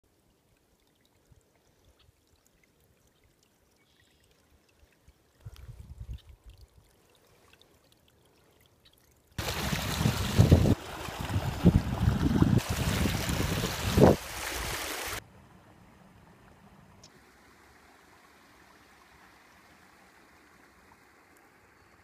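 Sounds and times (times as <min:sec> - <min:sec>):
water rushing through dam: 0:09.4 - 0:15.2.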